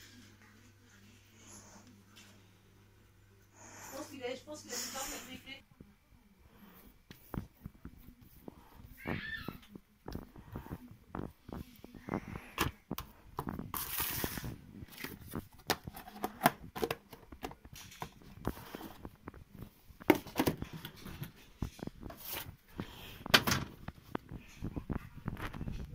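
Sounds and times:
plastic container handled: 12.5s - 22.6s.

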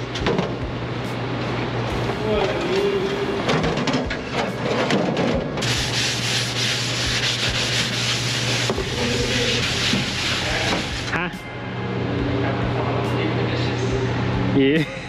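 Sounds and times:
abrasive pad scrubbing metal: 5.6s - 11.1s.

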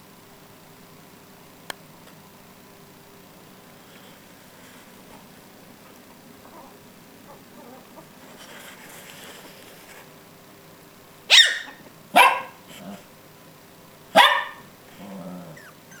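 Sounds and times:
small dog barking: 11.3s - 13.0s, 14.1s - 14.7s.

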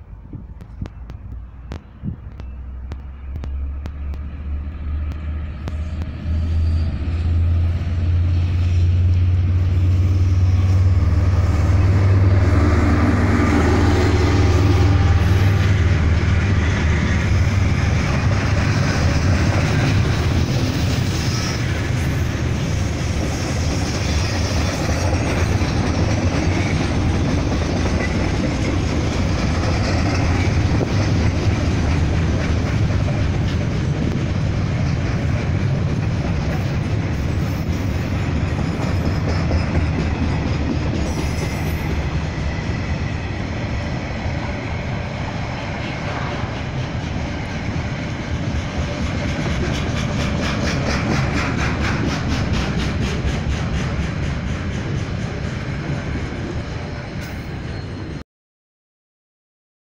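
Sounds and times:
locomotive engine drone: 0.0s - 58.2s
wagon wheels clattering on rail: 17.2s - 43.2s, 46.3s - 56.5s.

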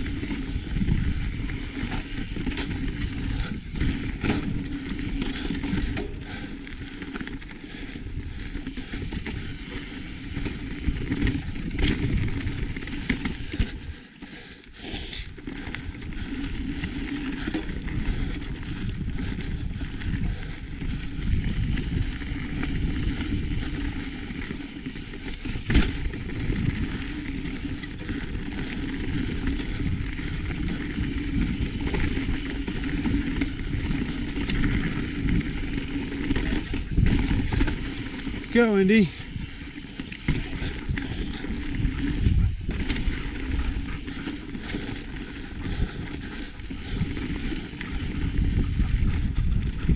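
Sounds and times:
wind on microphone: 0.0s - 6.4s, 16.0s - 49.9s
tyres on dirt and rock: 0.0s - 14.4s, 15.2s - 49.9s
bike knocks and clatters: 24.5s - 27.0s.

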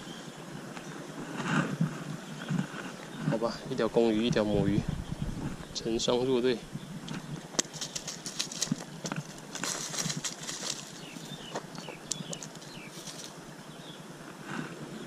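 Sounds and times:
light taps and rustling in grass: 7.1s - 13.4s.

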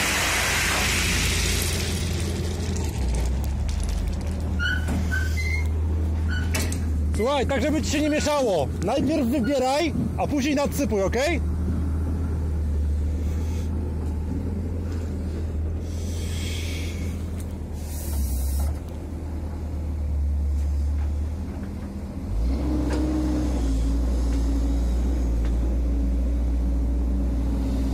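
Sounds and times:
heavy diesel engine running: 0.0s - 27.9s
short hisses: 17.8s - 18.8s.

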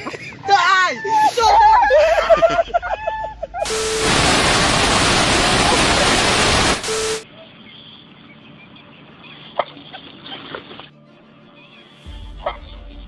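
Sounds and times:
steady tone: 3.6s - 7.2s
tv static hiss: 3.6s - 7.2s.

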